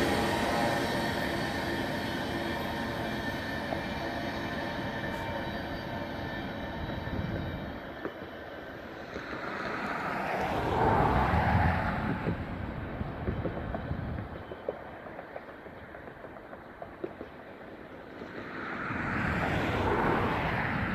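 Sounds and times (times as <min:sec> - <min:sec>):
freight train rolling past: 0:00.0 - 0:20.9
light clicks of wheels on rail: 0:06.9 - 0:20.6.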